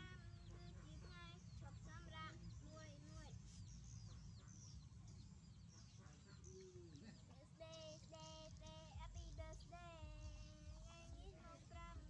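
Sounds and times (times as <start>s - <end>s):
faint voice singing: 7.6s - 12.0s.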